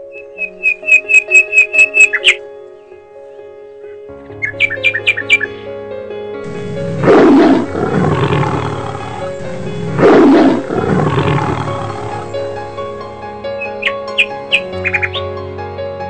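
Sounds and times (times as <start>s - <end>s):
background music: 0.0s - 16.0s
lion roaring: 6.5s - 13.0s.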